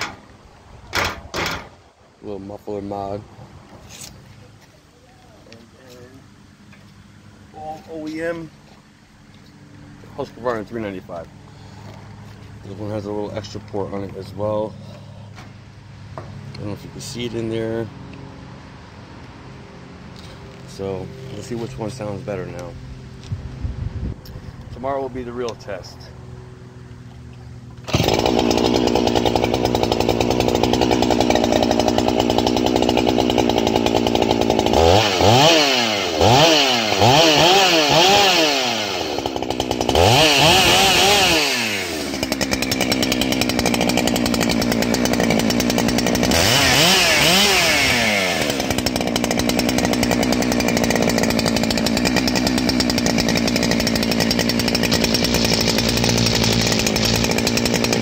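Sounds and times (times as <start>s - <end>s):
chainsaw idling and revving: 0.0s - 0.2s, 16.1s - 18.4s, 20.1s - 23.3s, 27.0s - 58.0s.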